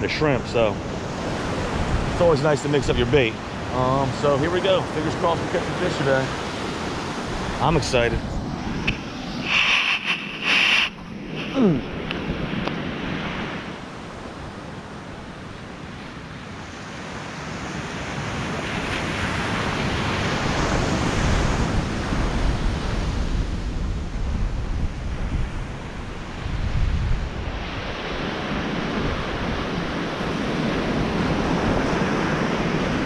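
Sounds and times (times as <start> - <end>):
wind buffeting microphone: 0.0 - 15.8, 18.2 - 33.0
ocean surf on beach: 0.0 - 33.0.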